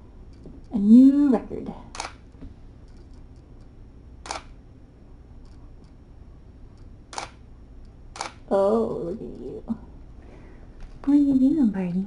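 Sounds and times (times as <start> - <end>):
low room hum: 0.0 - 12.0
camera shutter click: 2.0 - 2.2, 4.2 - 4.5, 7.1 - 7.4, 8.2 - 8.4.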